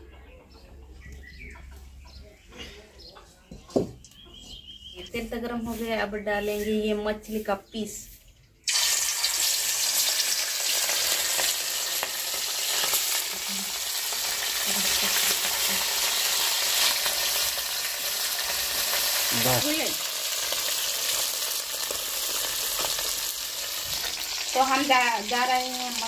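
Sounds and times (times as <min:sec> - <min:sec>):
fish sizzling in hot oil: 0:08.6 - 0:26.0.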